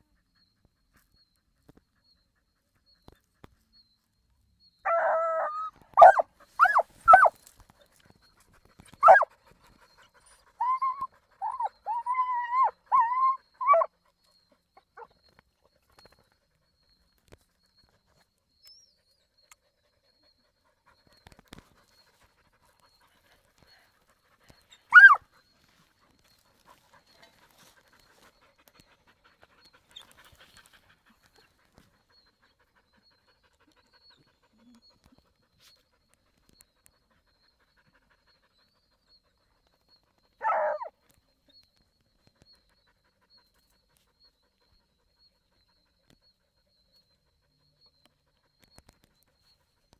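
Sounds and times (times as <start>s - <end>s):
dog yelping: 4.9s - 7.4s, 9.0s - 9.3s, 10.6s - 13.9s, 24.9s - 25.2s, 40.4s - 40.9s.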